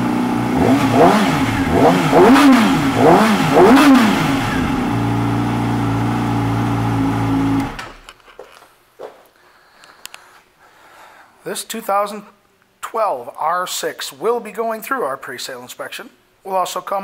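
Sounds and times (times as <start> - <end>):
motorcycle engine revving: 0.0 - 8.1
ignition key switching off: 7.5 - 8.1.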